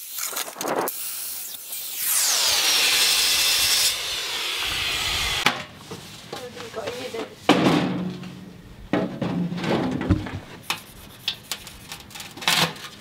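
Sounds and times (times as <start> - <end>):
circular saw cutting aluminium: 0.9 - 5.4.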